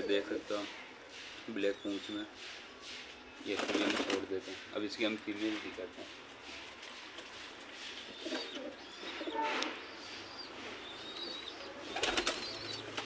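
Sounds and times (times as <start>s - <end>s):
pigeons cooing: 8.0s - 13.0s.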